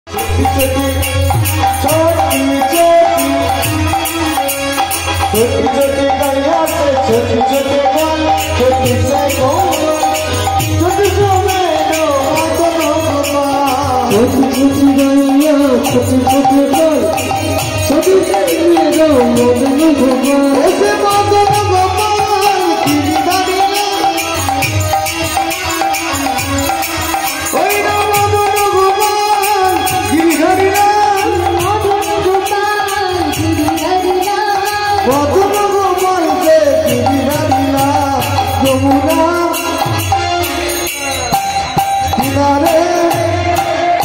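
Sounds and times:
hand cymbals jingling: 0.1 - 44.0
harmonium: 0.1 - 44.0.

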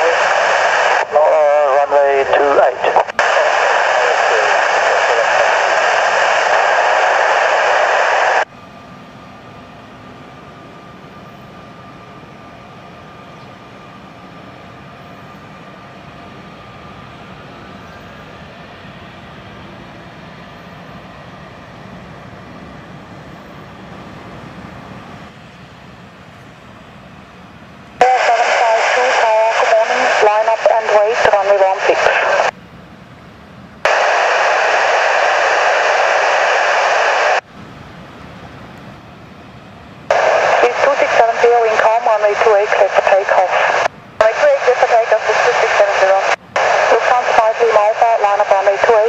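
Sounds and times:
radio scanner hiss: 0.0 - 8.5, 28.0 - 32.5, 33.8 - 37.4, 40.1 - 49.0
jet engines whining: 0.0 - 32.6, 33.7 - 49.0.

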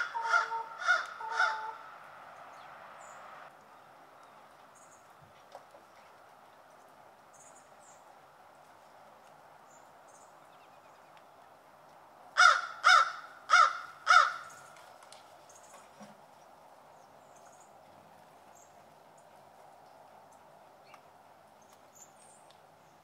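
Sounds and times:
crow cawing: 0.0 - 1.9, 12.4 - 14.6.

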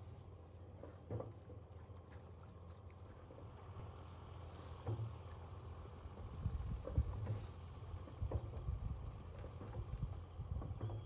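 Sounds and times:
wind rumble on microphone: 6.2 - 7.4, 8.1 - 11.0.

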